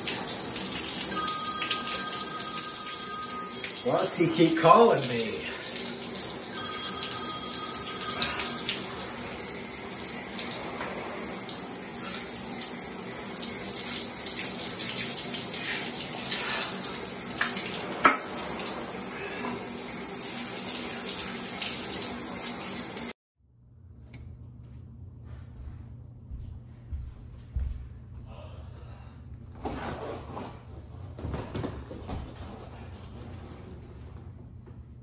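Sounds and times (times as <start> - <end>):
shower running: 0.0 - 23.2
electronic ringtone notes: 1.1 - 4.9, 6.5 - 9.0.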